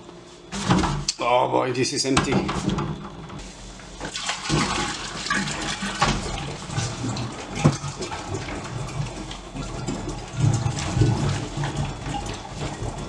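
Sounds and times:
water gushing and glugging: 0:03.9 - 0:13.0.

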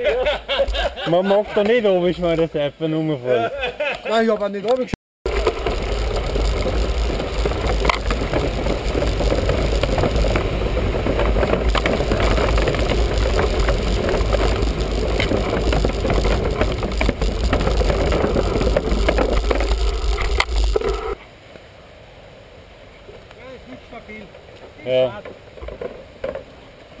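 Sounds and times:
bike rattling over rough trail: 0:05.3 - 0:21.2
wind rumble on microphone: 0:05.3 - 0:21.2.

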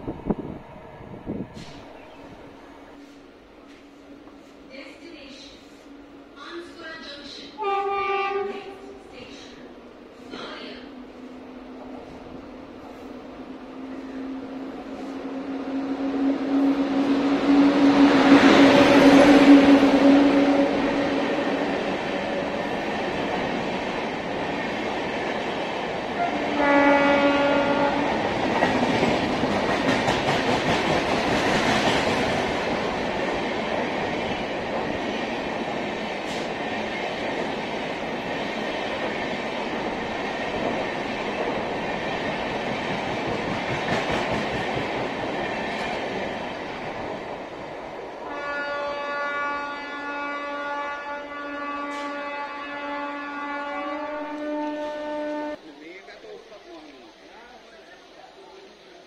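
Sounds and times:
train rushing past: 0:00.0 - 0:59.0
train horn: 0:07.6 - 0:09.1, 0:15.1 - 0:21.6, 0:26.1 - 0:28.4, 0:48.2 - 0:55.6.

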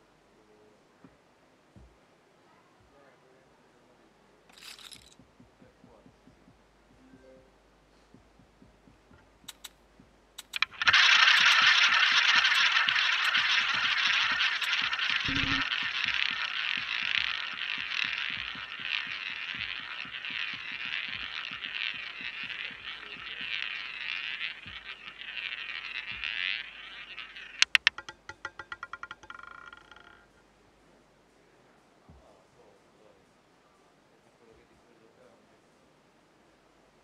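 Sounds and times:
roulette ball rolling whir: 0:08.1 - 0:30.4
sharp clicks: 0:08.7 - 0:28.8.

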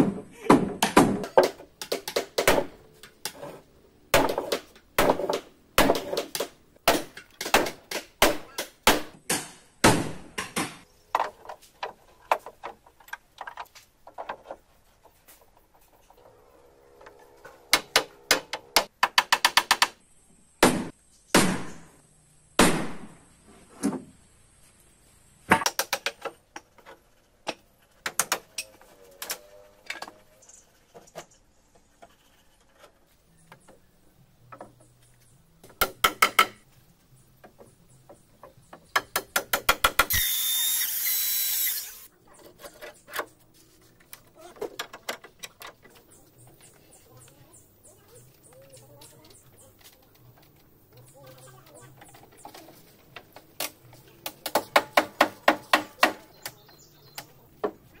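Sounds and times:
hammer on wooden timbers: 0:00.0 - 0:02.7, 0:35.6 - 0:36.6, 0:38.4 - 0:40.1, 0:54.2 - 0:56.3
handheld power tool running: 0:40.1 - 0:42.1.

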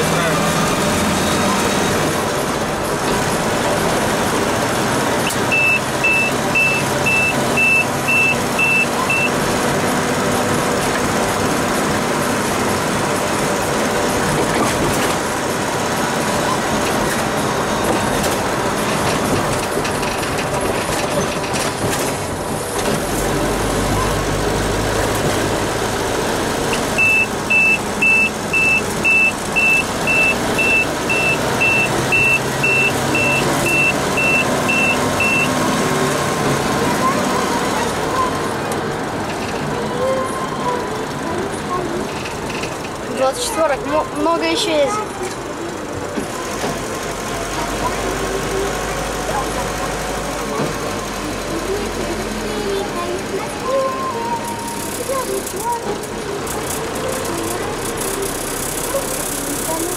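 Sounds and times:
diesel engine running: 0:00.0 - 0:59.9
high-pitched electronic beeps: 0:05.5 - 0:09.4, 0:27.0 - 0:35.6.

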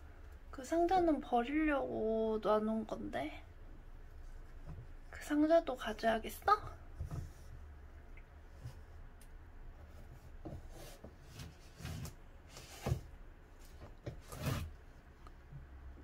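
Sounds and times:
cardboard box scraping and rustling: 0:14.2 - 0:14.7.

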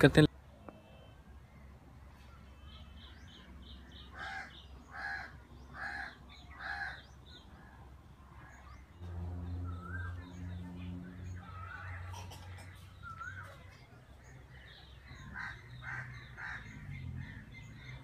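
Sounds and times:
crow cawing: 0:04.0 - 0:07.0, 0:15.3 - 0:16.9.

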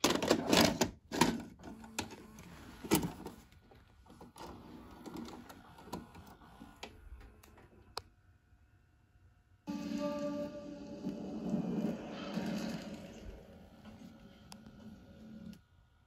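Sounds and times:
plastic clatter of cassette: 0:00.0 - 0:02.2.

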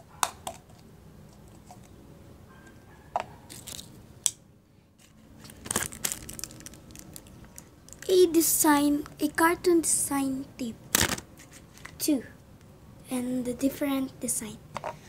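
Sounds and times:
plastic crinkling: 0:03.5 - 0:04.0, 0:05.0 - 0:08.1, 0:10.9 - 0:12.0.

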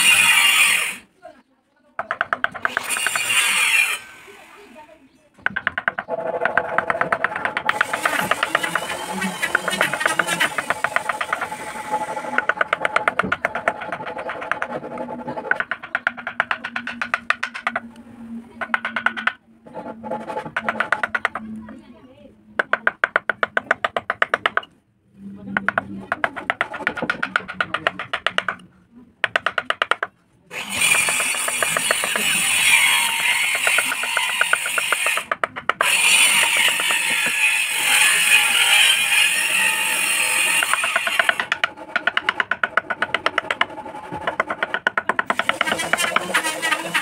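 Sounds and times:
mallet tapping chisel into wood: 0:05.4 - 0:11.6, 0:12.3 - 0:17.9, 0:18.6 - 0:19.4, 0:20.4 - 0:21.4, 0:22.6 - 0:24.8, 0:25.6 - 0:28.6, 0:29.2 - 0:30.1, 0:33.5 - 0:37.4, 0:40.6 - 0:46.5.

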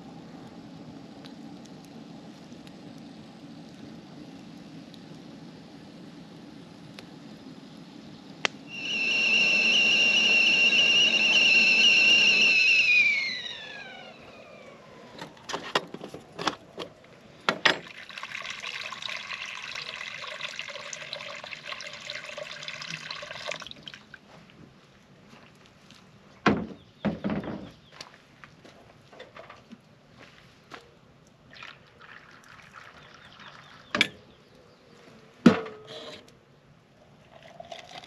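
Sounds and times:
kettle whistling: 0:08.4 - 0:15.9
hot water pouring: 0:08.7 - 0:14.3, 0:17.7 - 0:24.3, 0:31.5 - 0:34.0, 0:37.0 - 0:38.0.

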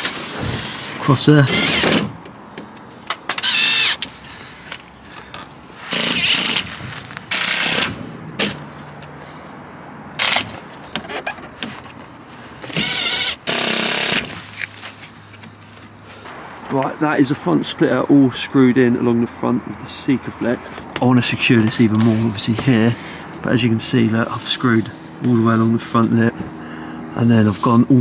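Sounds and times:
cordless drill whirring: 0:01.5 - 0:02.1, 0:03.4 - 0:04.1, 0:05.9 - 0:06.6, 0:07.3 - 0:08.0, 0:10.2 - 0:10.5, 0:12.7 - 0:14.4.

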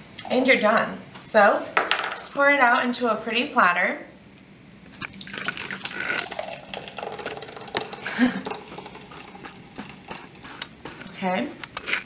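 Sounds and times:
thick soup pouring into a bowl: 0:05.0 - 0:10.8.

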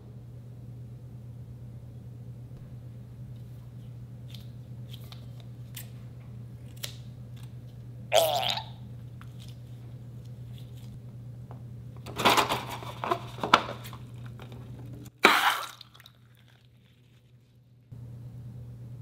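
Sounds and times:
crinkly squelchy balloon noises: 0:16.2 - 0:17.9.

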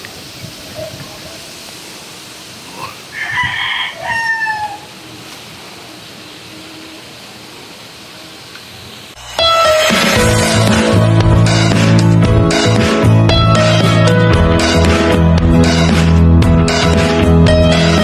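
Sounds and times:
faint outdoor hiss: 0:00.0 - 0:09.3
rooster crowing: 0:03.1 - 0:05.1.

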